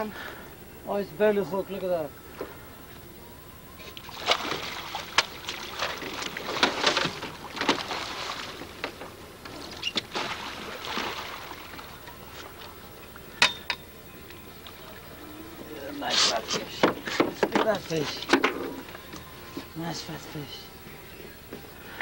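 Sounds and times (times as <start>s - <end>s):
fish splashing in water: 3.9s - 8.8s, 9.6s - 12.7s.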